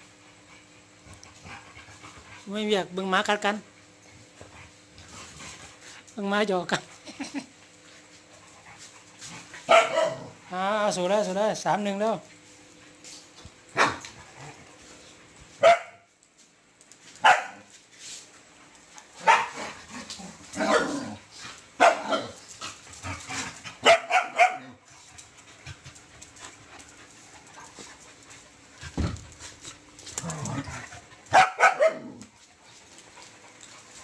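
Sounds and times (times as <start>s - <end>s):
dogs barking: 9.7s - 10.4s, 13.7s - 14.1s, 15.6s - 16.0s, 17.2s - 17.6s, 19.2s - 19.8s, 20.5s - 21.1s, 21.8s - 22.4s, 23.8s - 24.8s, 31.3s - 32.2s.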